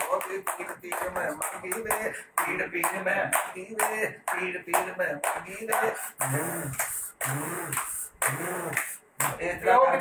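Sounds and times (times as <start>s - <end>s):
man's voice: 0.0s - 6.7s, 9.2s - 10.0s
hands clapping in rhythm: 0.0s - 9.4s.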